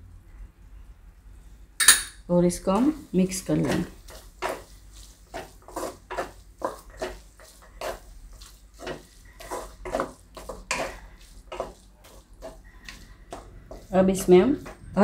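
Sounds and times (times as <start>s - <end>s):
metal spatula scraping a pan: 3.4s - 15.0s.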